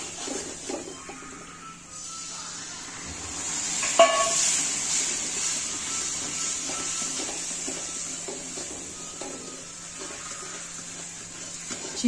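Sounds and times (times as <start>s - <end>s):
spoon stirring and scraping: 0.0s - 1.2s, 6.3s - 12.0s
food sizzling in a pan: 0.0s - 12.0s.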